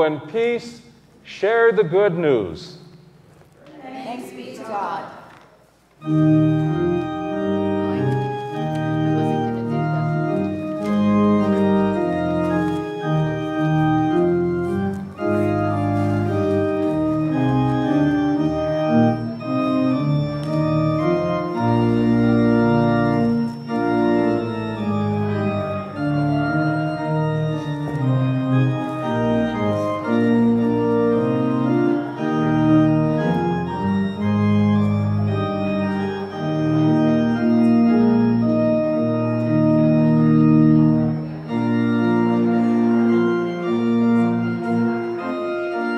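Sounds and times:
organ playing sustained chords: 0.0 - 3.4, 5.9 - 45.9.

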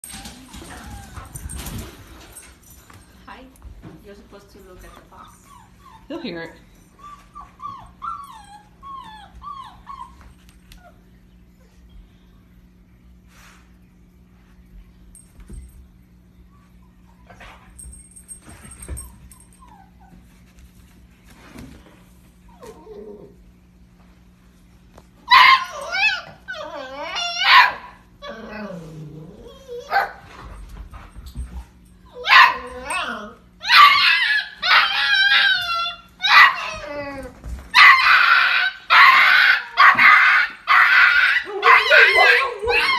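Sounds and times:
dog whimpering: 4.8 - 11.0, 22.5 - 23.4, 25.3 - 30.1, 32.1 - 42.9.

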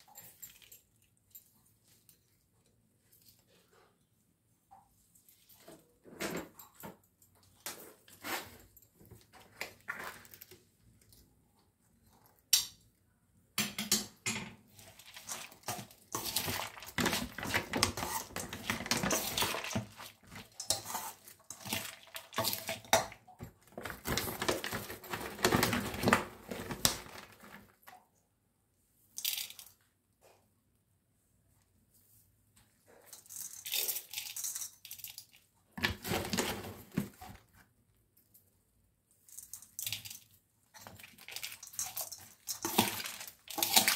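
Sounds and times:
steel spoon scraping a bowl: 14.8 - 22.6
puffed rice rustling in a bowl: 40.8 - 43.9.

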